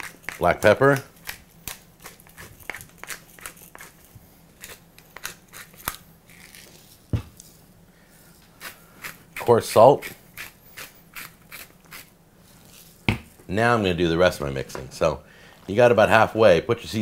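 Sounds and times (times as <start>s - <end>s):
pepper mill grinding: 0.0s - 7.6s, 8.6s - 13.0s.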